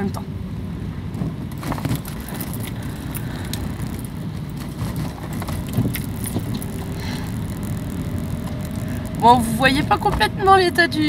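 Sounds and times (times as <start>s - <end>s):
car engine and tyres rumbling: 0.3s - 11.0s
faint clicks: 2.0s - 10.2s.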